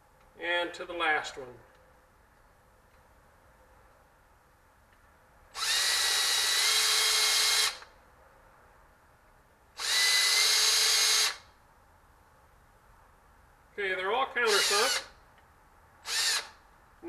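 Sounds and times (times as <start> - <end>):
cordless drill whining: 5.5 - 7.9, 9.8 - 11.5, 14.4 - 15.2, 16.0 - 16.6.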